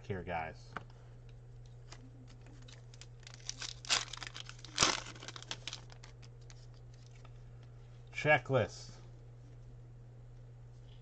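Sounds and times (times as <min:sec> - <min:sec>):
low steady hum: 0:00.0 - 0:11.0
foil wrapper crinkling: 0:01.9 - 0:07.3
wrapper ripping: 0:02.3 - 0:07.2.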